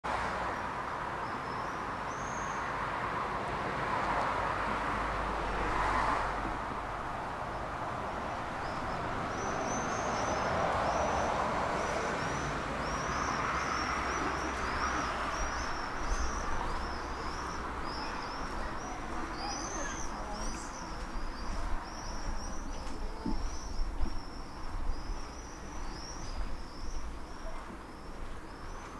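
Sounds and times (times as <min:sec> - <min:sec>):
road traffic noise: 0:00.0 - 0:28.9
vehicles passing: 0:00.0 - 0:28.9
small birds chirping: 0:08.4 - 0:28.9.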